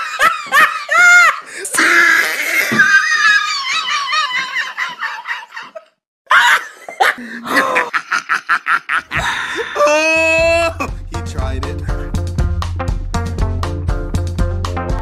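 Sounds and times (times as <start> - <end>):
child laughing: 2.2 - 10.9
music: 10.2 - 15.0.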